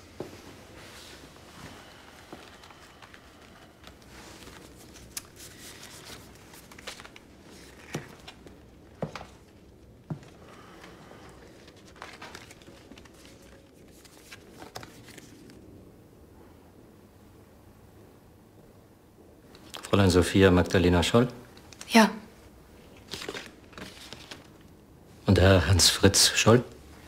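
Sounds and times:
paper rustling and crinkling: 0:00.4 - 0:15.6, 0:22.8 - 0:24.8.

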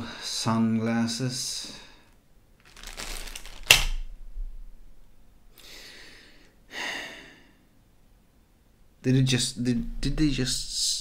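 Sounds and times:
plastic bag crinkling: 0:02.6 - 0:04.1.

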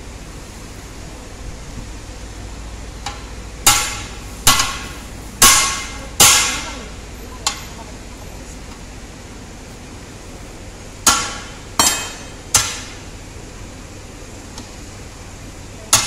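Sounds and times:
hammer striking metal rim: 0:03.0 - 0:06.8, 0:11.0 - 0:13.0.

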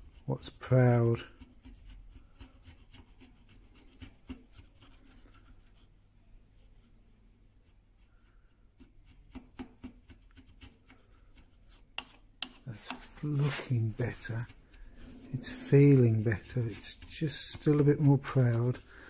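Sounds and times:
chisel scraping wood: 0:09.0 - 0:18.8.

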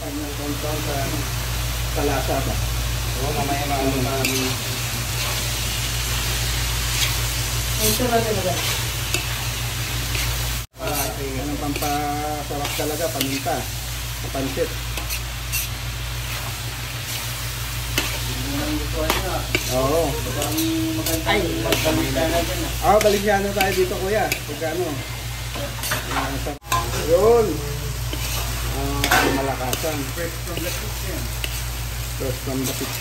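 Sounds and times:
meat sizzling in pan: 0:00.0 - 0:33.0
metal utensil scraping pan: 0:03.8 - 0:05.6, 0:10.1 - 0:13.6, 0:14.5 - 0:17.2, 0:17.9 - 0:24.8, 0:25.6 - 0:27.4, 0:28.1 - 0:31.6.

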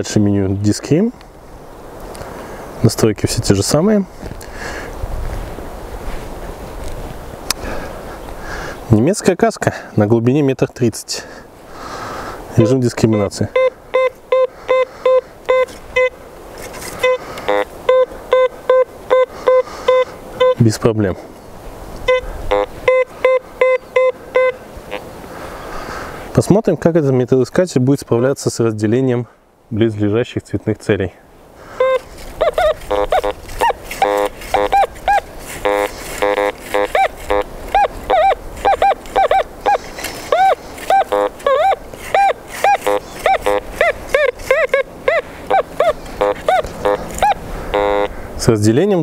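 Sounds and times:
low buzzy detector tone: 0:12.6 - 0:16.2, 0:17.0 - 0:20.6, 0:22.0 - 0:25.0, 0:31.8 - 0:48.2
metal detector beeping: 0:12.6 - 0:16.2, 0:16.9 - 0:20.6, 0:22.0 - 0:25.0, 0:31.8 - 0:48.1.

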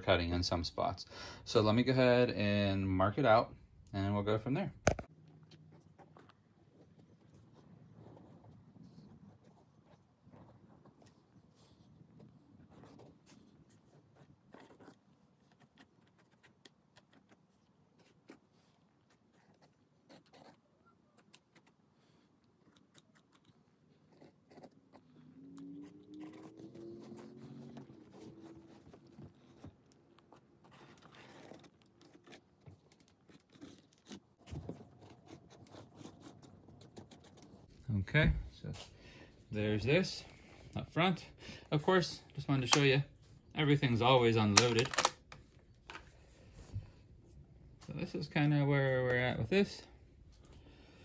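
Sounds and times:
marker scratching: 0:05.6 - 0:37.7.

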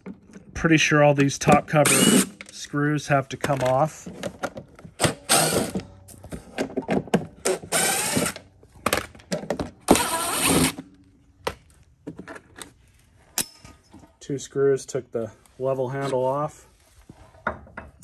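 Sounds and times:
cordless driver running: 0:07.6 - 0:08.4.

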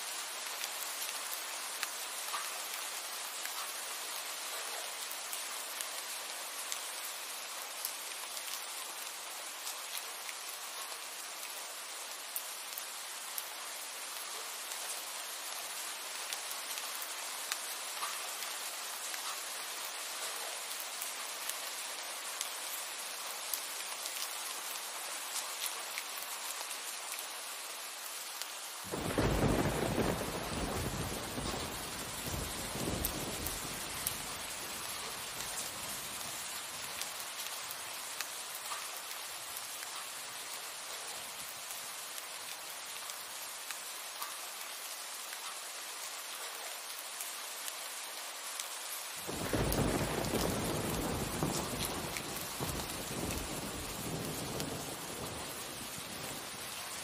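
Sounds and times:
steady rain: 0:00.0 - 0:57.0
thunder rolling: 0:28.9 - 0:33.8, 0:49.3 - 0:55.4.

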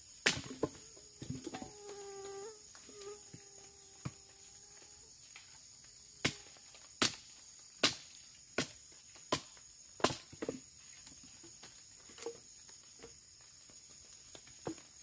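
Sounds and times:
machete chopping wood: 0:00.2 - 0:00.8, 0:06.2 - 0:10.6.

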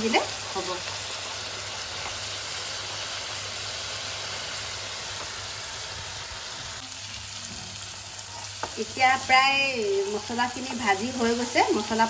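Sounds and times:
paste sizzling in hot oil: 0:00.0 - 0:12.0.

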